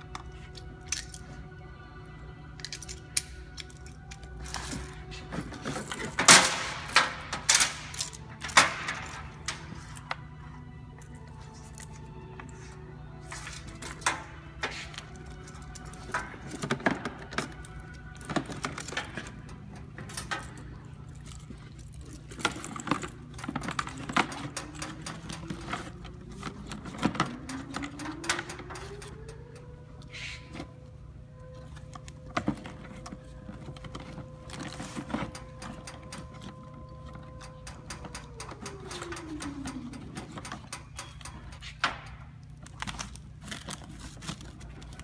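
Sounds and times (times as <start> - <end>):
clicks knocks and rustling of gear: 13.2 - 45.0.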